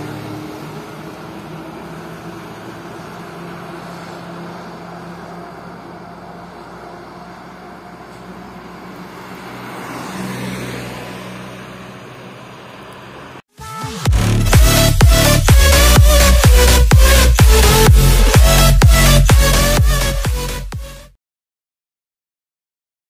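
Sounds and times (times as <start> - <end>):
motorcycle moving away: 0.0 - 13.4
small car passing close: 0.0 - 13.4
truck engine hum: 0.0 - 21.1.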